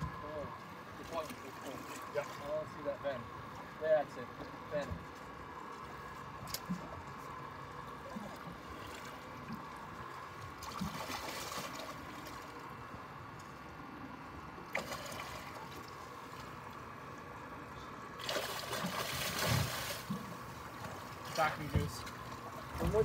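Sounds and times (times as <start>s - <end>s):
water sloshing against boat: 0.0s - 23.0s
fish splash: 10.6s - 12.0s, 14.7s - 15.9s, 18.2s - 20.3s.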